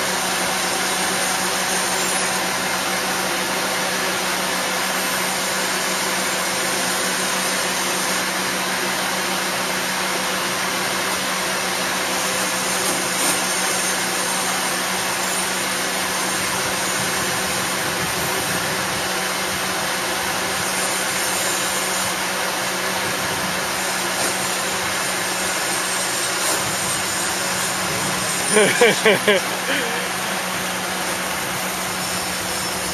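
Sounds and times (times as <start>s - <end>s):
lift engine humming: 24.7s - 32.9s.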